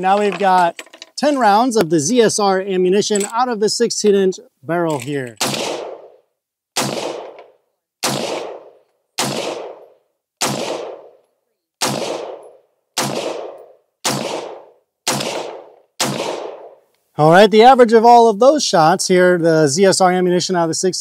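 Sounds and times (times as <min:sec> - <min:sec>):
rifle shots: 0:05.4 - 0:06.2, 0:06.8 - 0:11.2, 0:11.8 - 0:16.8.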